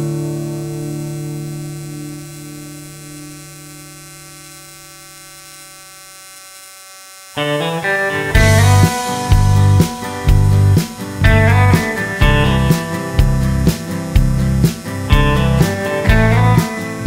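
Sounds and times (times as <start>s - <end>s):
guitar phrase: 7.4s - 17.0s
held chord: 7.4s - 17.0s.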